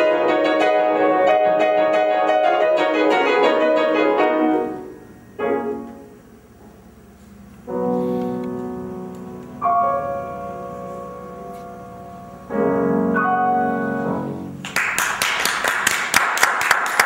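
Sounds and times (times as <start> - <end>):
grand piano chords: 0.0 - 16.2
audience applause: 14.6 - 17.0.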